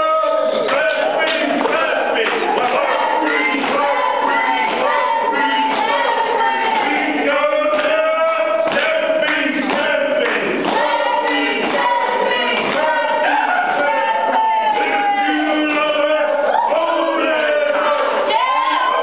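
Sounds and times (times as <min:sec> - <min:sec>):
group of voices singing: 0:00.0 - 0:19.0.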